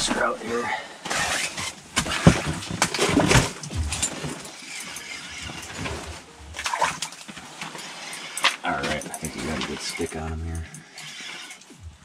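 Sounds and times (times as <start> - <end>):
fishing gear knocking: 2.0 - 7.0.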